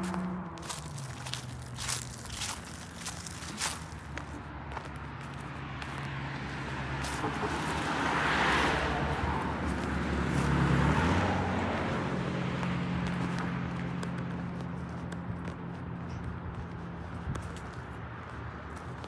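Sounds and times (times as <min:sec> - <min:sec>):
footsteps on pavement: 0:00.0 - 0:19.0
car driving past: 0:05.5 - 0:13.2.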